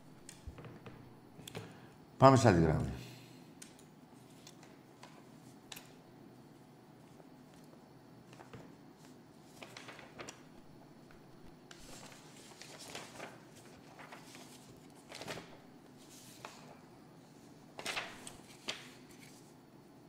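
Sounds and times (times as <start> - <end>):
paper rustling: 7.5 - 16.9, 17.7 - 19.6.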